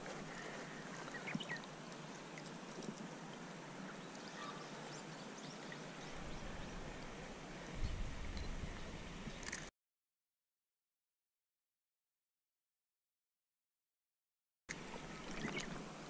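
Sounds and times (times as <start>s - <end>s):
stream running over pebbles: 0.0s - 9.7s, 14.7s - 16.0s.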